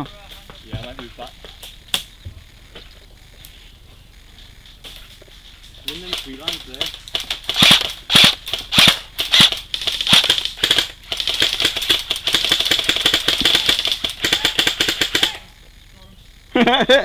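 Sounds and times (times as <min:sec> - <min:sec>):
airsoft gun firing: 0:06.0 - 0:15.5.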